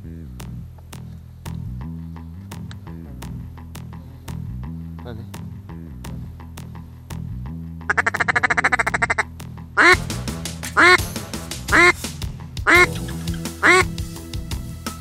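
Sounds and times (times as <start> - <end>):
background music: 0.0 - 15.0
duck quacking: 7.9 - 10.0, 10.8 - 11.0, 11.7 - 12.0, 12.7 - 13.9.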